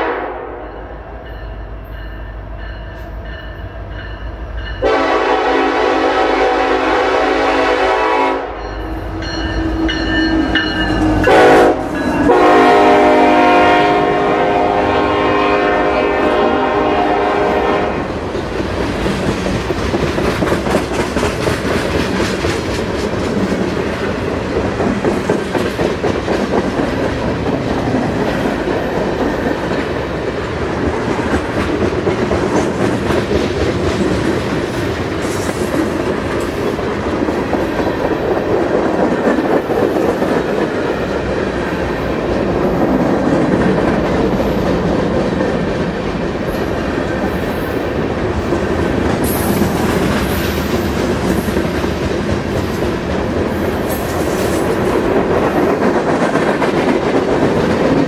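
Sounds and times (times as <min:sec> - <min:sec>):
locomotive horn blasts: 0:00.0 - 0:00.8, 0:04.8 - 0:08.8, 0:10.4 - 0:18.1
train wheels clicking over rail joints: 0:18.1 - 0:58.0.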